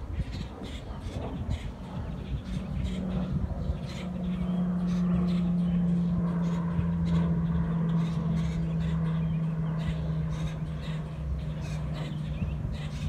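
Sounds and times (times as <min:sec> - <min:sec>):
birds calling: 0:00.0 - 0:13.0
engine running: 0:00.0 - 0:13.0.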